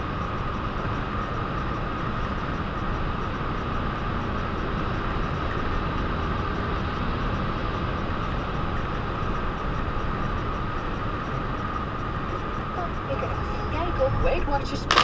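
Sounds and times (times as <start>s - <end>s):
road and tyre noise inside car: 0.0s - 15.0s
steady whine: 0.0s - 15.0s.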